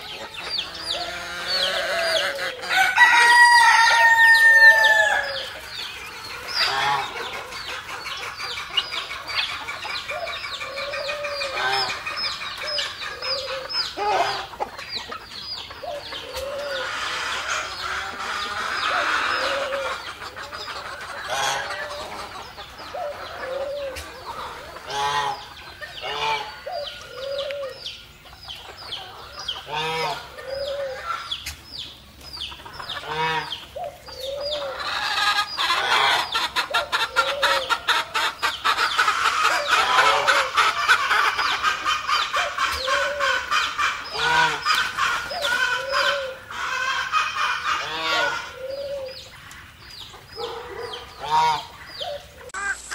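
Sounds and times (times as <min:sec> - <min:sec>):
chickens clucking: 0:00.0 - 0:52.9.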